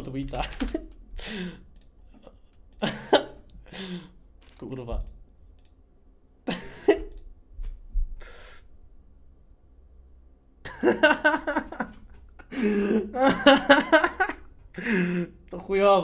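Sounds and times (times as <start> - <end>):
man laughing: 0.4 - 1.6, 2.2 - 4.1, 6.5 - 7.1, 10.7 - 15.3
short breaths: 8.2 - 8.7.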